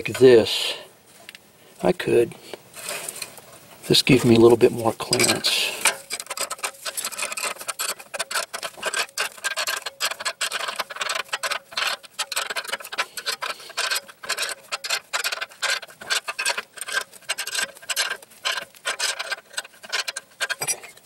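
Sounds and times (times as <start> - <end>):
ratcheting wrench clicking: 5.1 - 21.0.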